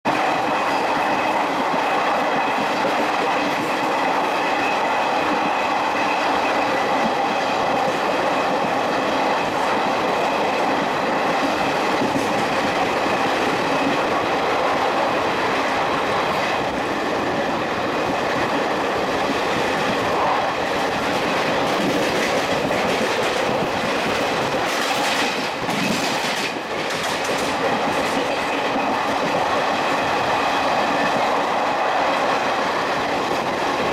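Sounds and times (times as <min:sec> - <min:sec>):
train wheels clattering on rails: 0:00.0 - 0:33.9.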